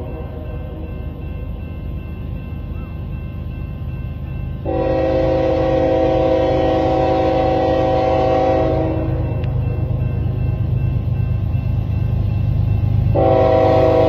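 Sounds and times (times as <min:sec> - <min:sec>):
locomotive air horn: 0:04.7 - 0:09.3, 0:13.2 - 0:14.0.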